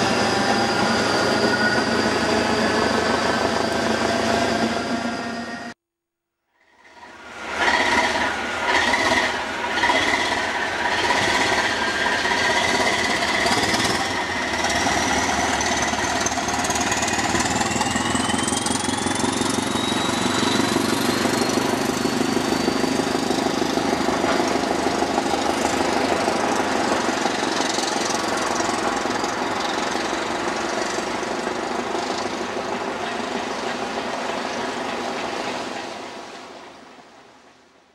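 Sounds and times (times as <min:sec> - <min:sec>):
rising whine of train: 0:00.0 - 0:05.8, 0:06.6 - 0:37.9
diesel train engine thumping: 0:08.8 - 0:35.1.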